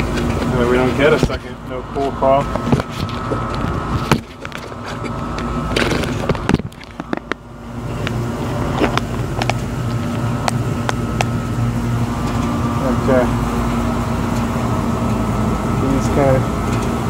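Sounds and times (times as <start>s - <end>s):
air conditioner unit humming: 0.0s - 17.0s
sharp clicks and knocks: 2.5s - 7.4s, 8.0s - 11.4s.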